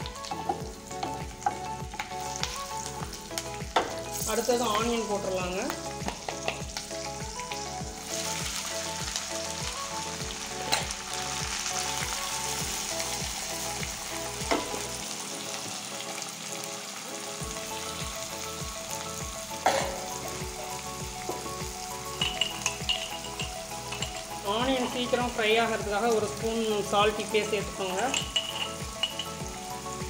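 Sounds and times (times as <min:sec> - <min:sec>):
onions sizzling in oil: 0:00.0 - 0:30.0.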